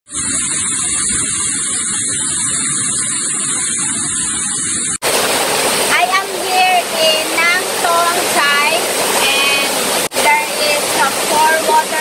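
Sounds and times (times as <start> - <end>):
static-like hiss: 0.2 - 12.0
waterfall rushing: 5.0 - 12.0.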